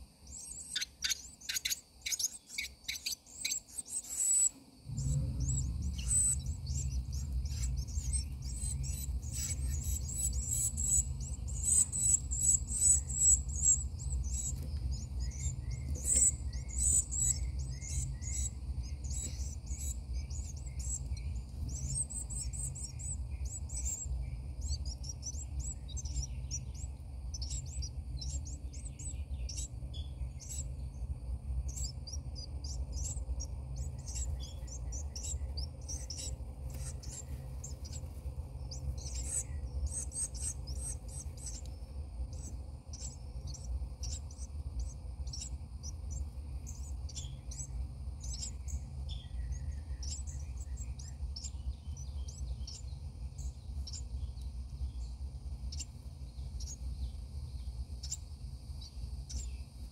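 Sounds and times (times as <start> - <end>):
nestlings chirping: 0.0 - 59.9
low rumble: 4.8 - 53.2.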